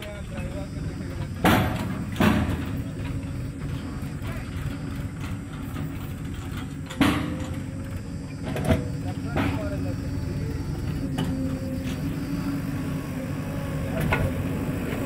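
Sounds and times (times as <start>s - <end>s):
diesel engines running: 0.0s - 15.0s
mud thudding into trailer: 1.0s - 10.2s.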